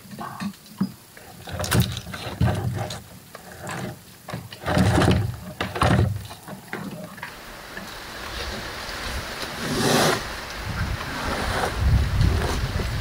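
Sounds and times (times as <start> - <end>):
gear handled in wooden boat: 0.0 - 8.6.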